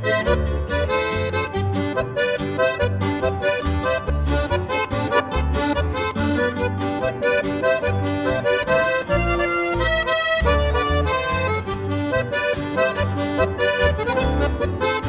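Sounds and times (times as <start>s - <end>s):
accordion music: 0.0s - 15.0s.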